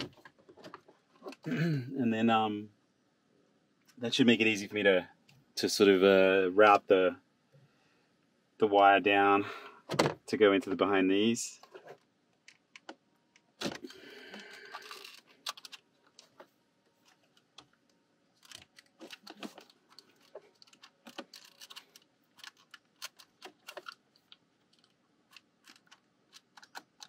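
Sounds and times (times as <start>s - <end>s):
plastic clicks and rattles: 18.4s - 27.0s.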